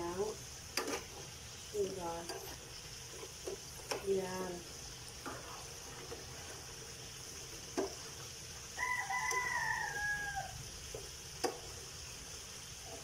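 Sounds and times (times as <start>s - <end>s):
food sizzling in a pan: 0.0s - 13.0s
metal spatula clicking on pan: 3.5s - 4.1s, 11.4s - 11.7s
rooster crowing: 8.7s - 10.7s.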